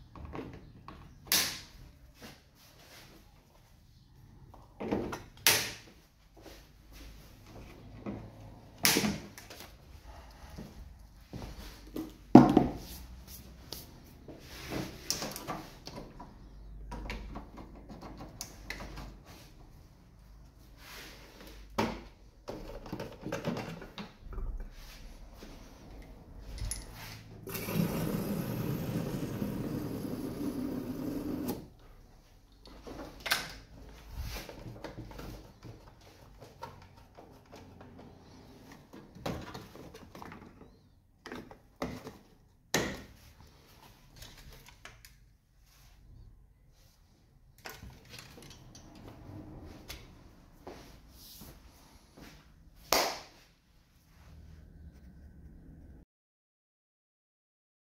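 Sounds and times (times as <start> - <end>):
tools and parts clicking: 26.5 - 27.0.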